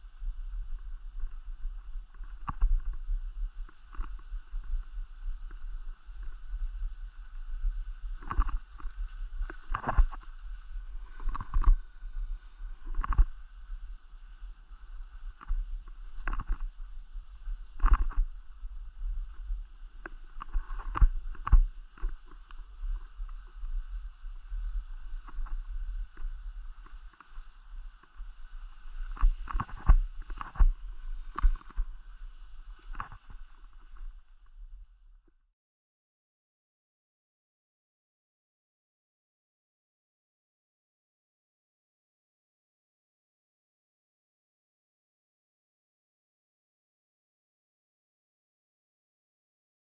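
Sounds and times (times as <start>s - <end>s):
skis scraping over snow: 0.0s - 34.9s
wind rumble on microphone: 0.0s - 35.5s.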